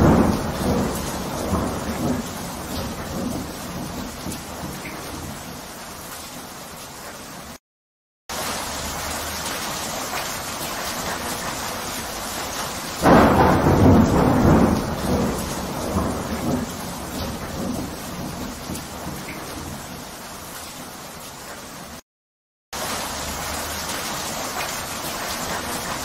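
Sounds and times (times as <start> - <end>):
thunder rolling: 0.0 - 5.4, 13.0 - 19.9
steady rain: 0.0 - 7.6, 8.3 - 22.0, 22.8 - 26.0.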